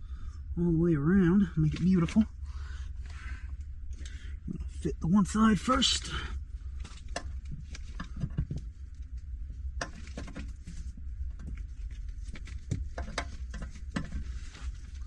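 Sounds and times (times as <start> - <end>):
steady low hum: 0.0 - 15.0
gloved hands twisting pipe: 6.8 - 8.7, 9.8 - 15.0.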